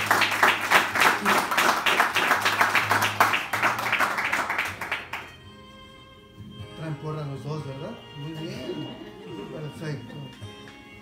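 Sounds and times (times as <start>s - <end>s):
people clapping: 0.0s - 5.4s.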